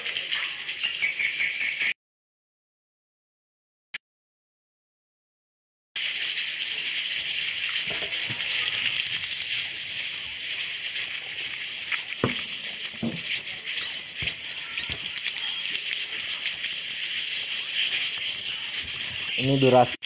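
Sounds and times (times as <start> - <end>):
swiftlets twittering: 0.0 - 1.9, 6.2 - 20.0.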